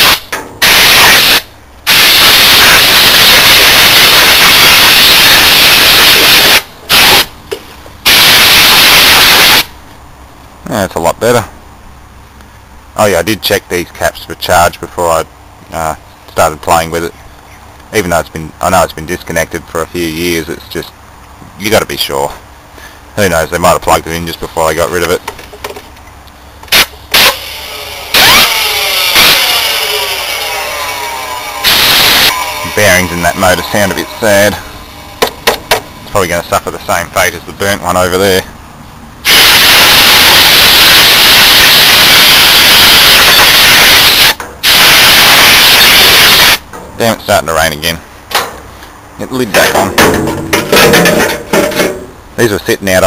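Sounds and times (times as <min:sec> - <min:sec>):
compressed air blasts: 0:00.0 - 0:09.7, 0:26.7 - 0:30.0, 0:31.6 - 0:32.4, 0:39.2 - 0:46.6
compressed air blow gun hissing: 0:31.6 - 0:32.4.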